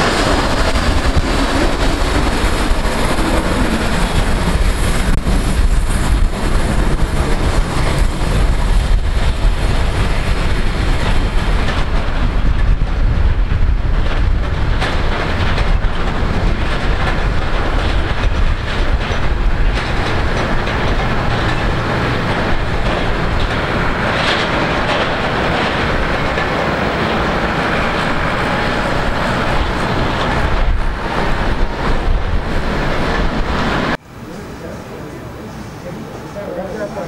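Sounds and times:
jet engines rumbling and hissing: 0.0 - 37.0.

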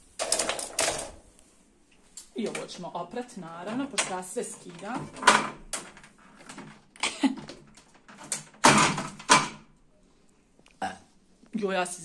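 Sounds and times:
fridge shelves and containers clattering: 2.4 - 9.7.

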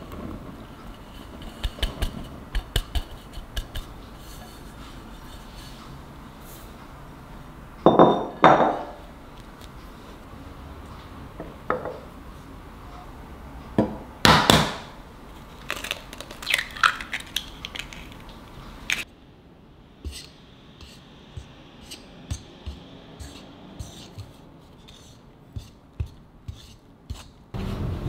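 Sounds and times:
ceramic bowl knocks and clinks: 7.9 - 8.9
eggshell crackling: 15.5 - 19.0
egg cracking against bowl: 15.6 - 18.3.

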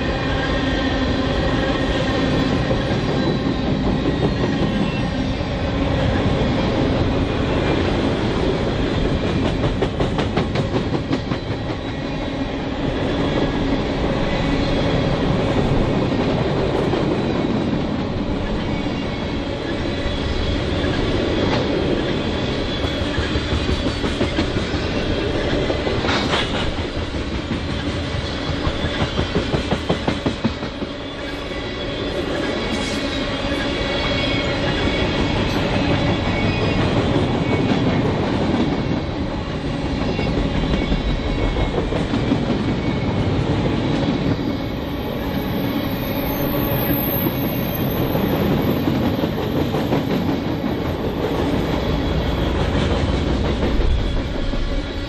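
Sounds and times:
freight train rumbling past: 0.0 - 55.0
train wheels clicking: 6.3 - 12.1, 19.6 - 39.3, 39.9 - 55.0.

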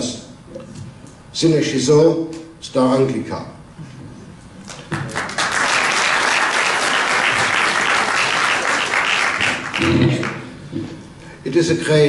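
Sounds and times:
audience applauding: 4.7 - 10.5.

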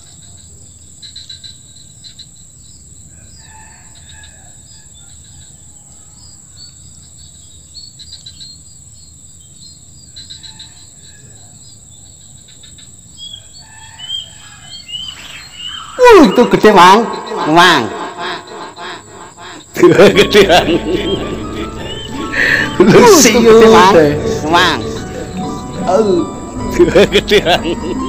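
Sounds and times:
insects droning: 0.0 - 28.0
birds chirping: 12.4 - 28.0.

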